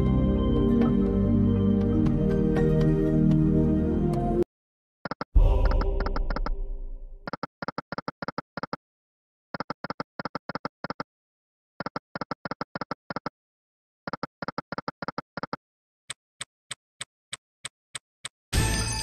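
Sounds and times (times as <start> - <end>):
sharp ticks: 5.0 - 6.6, 7.2 - 8.8, 9.6 - 11.1, 11.8 - 13.3, 14.1 - 15.6.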